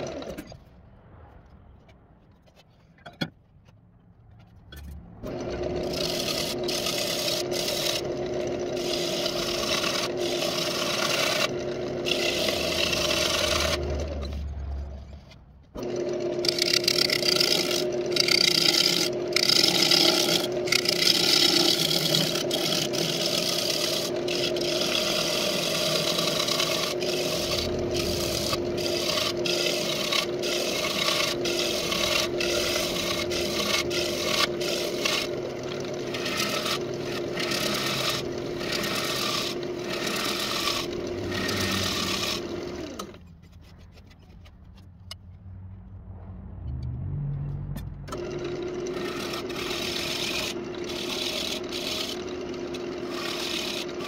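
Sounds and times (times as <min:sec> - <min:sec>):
wood lathe motor hum: 0:00.0 - 0:00.4, 0:05.2 - 0:14.4, 0:15.8 - 0:43.2, 0:48.1 - 0:54.0
turning tool scraping wood: 0:04.3 - 0:45.5, 0:48.1 - 0:54.0.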